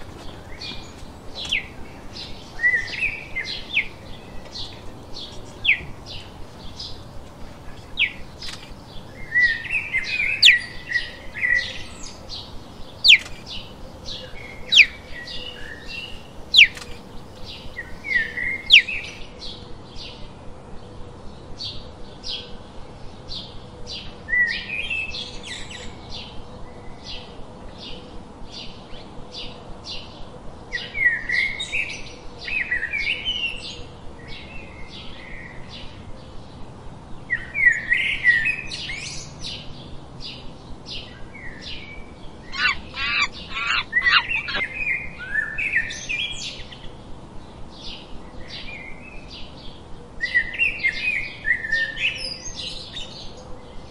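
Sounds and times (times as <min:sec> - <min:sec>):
birds warbling song: 0:00.0 - 0:20.2, 0:30.7 - 0:53.9
bird repeating high chirp: 0:16.5 - 0:16.8, 0:42.6 - 0:44.8.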